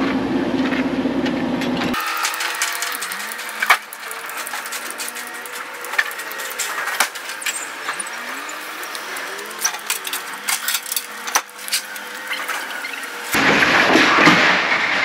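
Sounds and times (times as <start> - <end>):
truck engines idling: 2.0 - 13.4.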